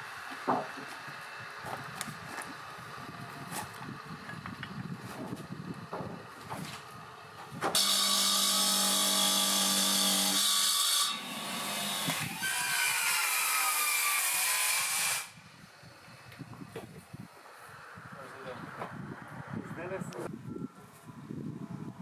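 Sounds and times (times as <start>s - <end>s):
wet tile saw cutting stone: 7.8s - 15.4s.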